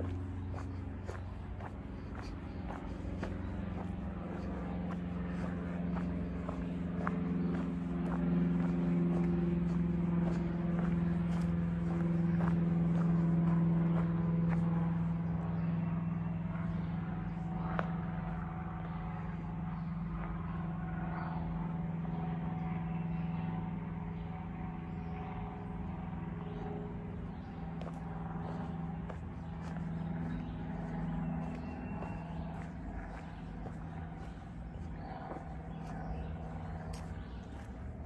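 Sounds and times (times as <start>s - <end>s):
low motor hum: 0.0s - 38.0s
faint ticks and crunches: 27.7s - 38.0s.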